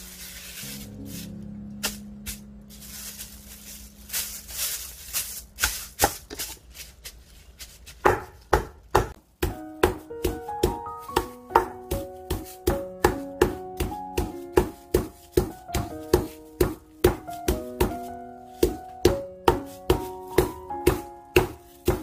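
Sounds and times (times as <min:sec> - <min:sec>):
light background music: 0:00.0 - 0:06.0, 0:09.2 - 0:22.0
plastic wrap crinkling: 0:00.0 - 0:09.2
meat tenderizer pounding: 0:08.0 - 0:22.0.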